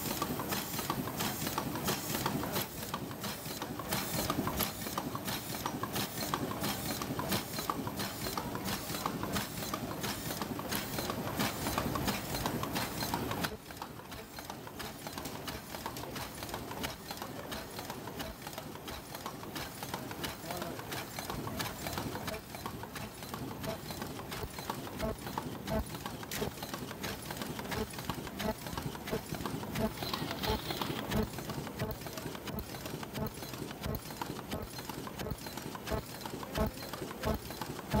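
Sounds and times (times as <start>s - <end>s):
machine mechanical din: 18.2s - 38.0s.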